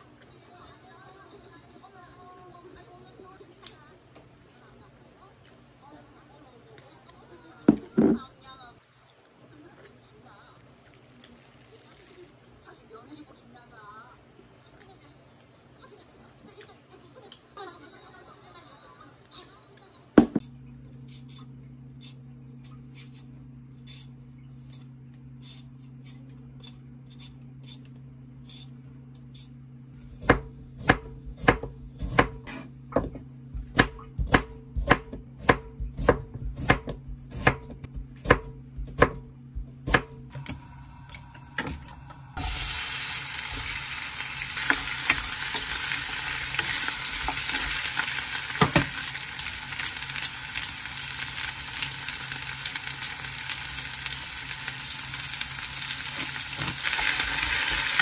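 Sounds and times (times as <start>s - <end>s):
peeler scraping a potato: 21.1s - 30.2s
knife chopping on wooden board: 30.1s - 40.2s
potato and onion sizzling in a pan: 42.3s - 58.0s.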